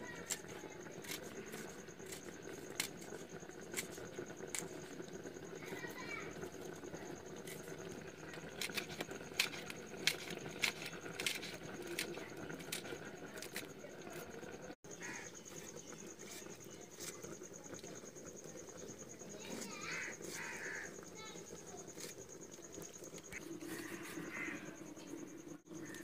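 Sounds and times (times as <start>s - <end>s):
knife cutting leafy greens: 0.2s - 4.7s.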